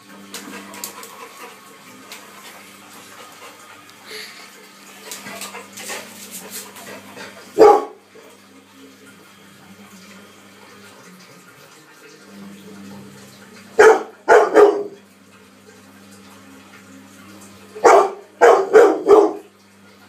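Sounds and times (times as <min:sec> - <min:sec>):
washing machine humming: 0:00.0 - 0:20.0
dog barking: 0:07.6 - 0:08.0, 0:13.8 - 0:15.0, 0:17.8 - 0:19.5.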